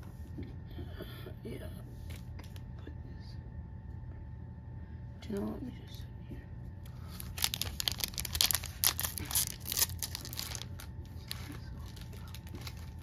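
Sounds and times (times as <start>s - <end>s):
wrapper tearing and crinkling: 7.1s - 13.0s.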